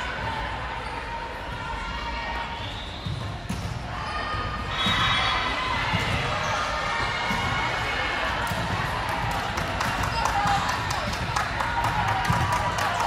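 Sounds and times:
chatter of players and spectators: 0:00.0 - 0:13.0
volleyball impact: 0:07.1 - 0:13.0.

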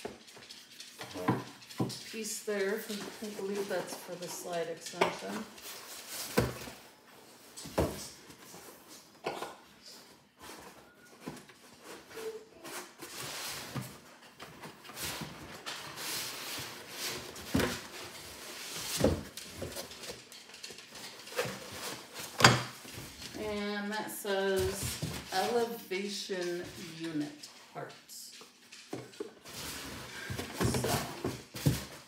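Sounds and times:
cardboard rustling and scraping: 0:01.0 - 0:23.4, 0:29.0 - 0:32.0.

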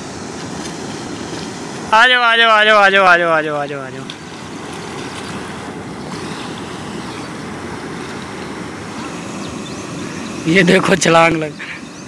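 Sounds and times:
rushing turbulent water: 0:00.0 - 0:12.0.

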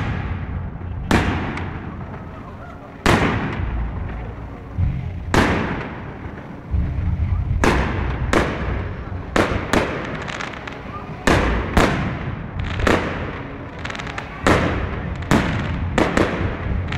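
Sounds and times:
fireworks exploding: 0:00.0 - 0:16.9
low rumble: 0:00.0 - 0:16.9.

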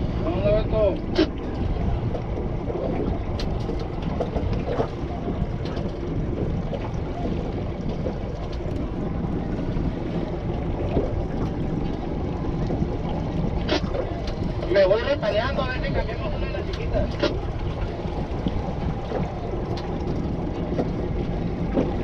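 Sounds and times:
boat engine rumble and hiss: 0:00.0 - 0:22.0
faint clicks and knocks: 0:02.1 - 0:09.0, 0:16.6 - 0:22.0.

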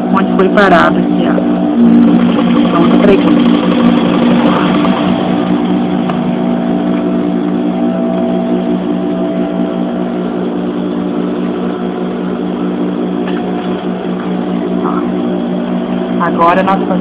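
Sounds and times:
sewing machine motor humming: 0:01.7 - 0:06.4.

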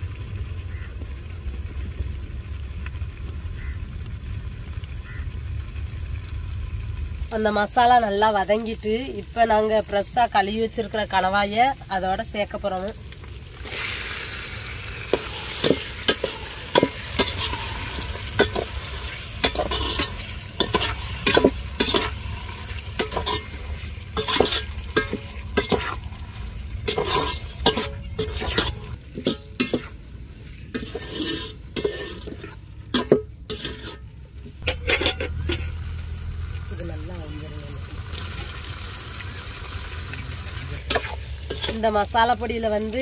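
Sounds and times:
food sizzling: 0:00.0 - 0:43.0
ladle scraping a metal pot: 0:15.0 - 0:35.8, 0:40.8 - 0:41.9.

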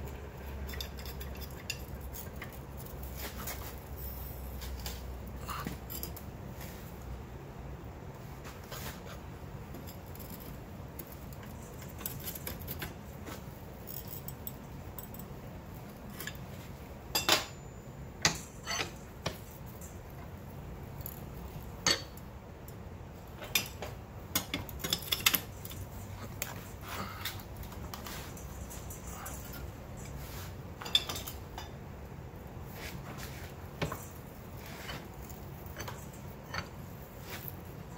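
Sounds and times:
wrench clinking against steel: 0:00.4 - 0:04.0, 0:05.5 - 0:06.3, 0:13.8 - 0:20.3, 0:23.4 - 0:30.2, 0:30.8 - 0:31.8, 0:33.8 - 0:37.9.

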